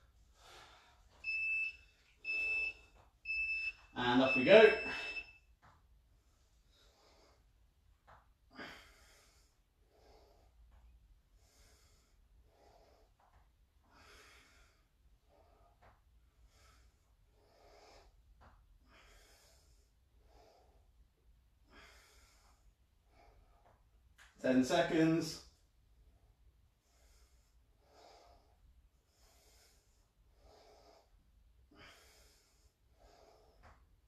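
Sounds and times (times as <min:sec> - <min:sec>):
man breathing hard: 0:00.1 - 0:01.2, 0:08.5 - 0:18.2, 0:18.8 - 0:21.0, 0:21.6 - 0:23.8, 0:26.8 - 0:34.0.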